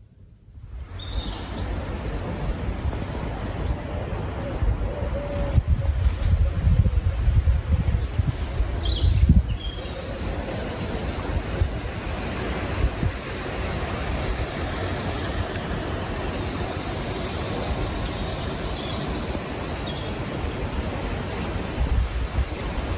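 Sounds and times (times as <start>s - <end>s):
wind buffeting microphone: 0.6s - 22.9s
wind rushing: 2.6s - 22.9s
distant city noise: 8.3s - 22.9s.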